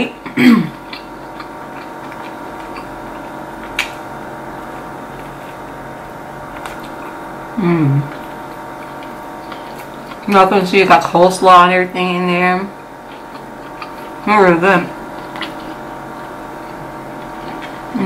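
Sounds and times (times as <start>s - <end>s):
steady background hum: 0.0s - 18.0s
crunch of biting fried chicken: 0.8s - 7.4s, 13.0s - 14.2s, 15.0s - 17.9s
person humming: 7.6s - 8.2s.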